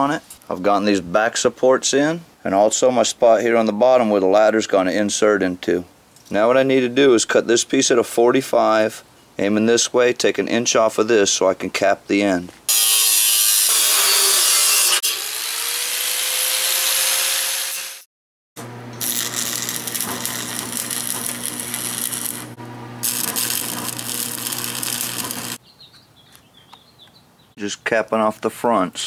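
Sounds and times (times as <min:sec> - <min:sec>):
angle grinder cutting steel: 0:12.7 - 0:18.1, 0:18.9 - 0:25.6
welder arc crackling: 0:18.6 - 0:25.6.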